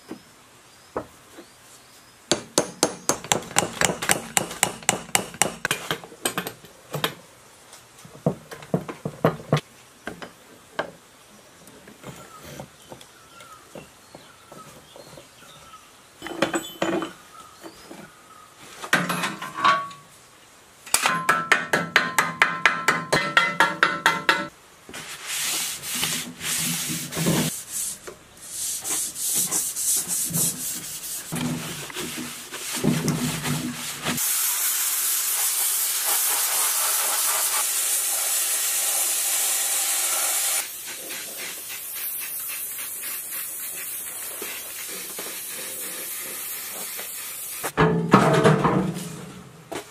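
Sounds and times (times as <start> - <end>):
steady hiss: 24.5 - 47.8
hand scraping on bare metal: 25.0 - 34.2.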